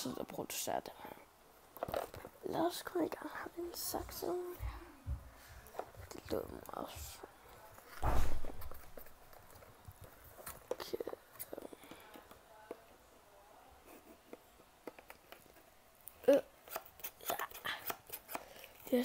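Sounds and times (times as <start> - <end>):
scissors cutting cardboard: 16.6 - 18.6.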